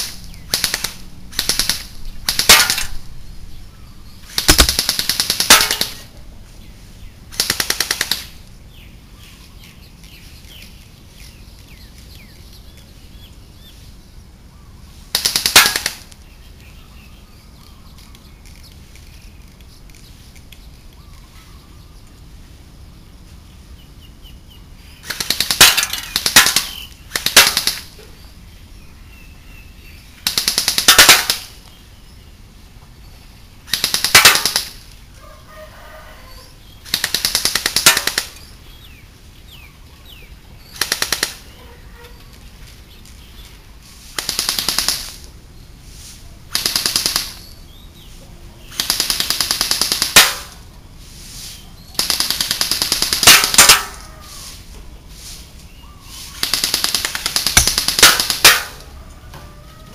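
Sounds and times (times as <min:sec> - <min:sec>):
gel blaster rapid bursts: 0:00.5 - 0:02.8, 0:04.3 - 0:06.0, 0:07.4 - 0:08.3, 0:25.0 - 0:27.9, 0:30.2 - 0:31.4, 0:33.7 - 0:34.8, 0:36.9 - 0:38.3, 0:40.8 - 0:41.4, 0:44.2 - 0:45.2, 0:46.5 - 0:47.4, 0:48.7 - 0:50.4, 0:52.0 - 0:53.8, 0:56.4 - 0:58.7.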